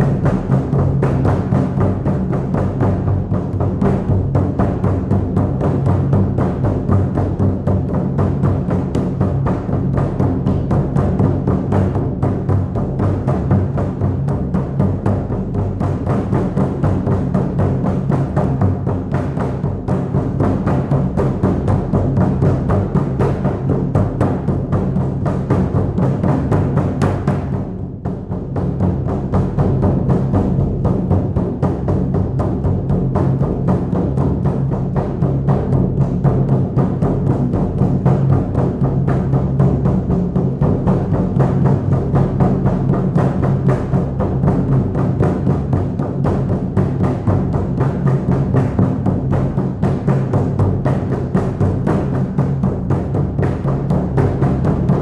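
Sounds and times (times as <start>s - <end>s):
frame drum beating: 0.0s - 55.0s.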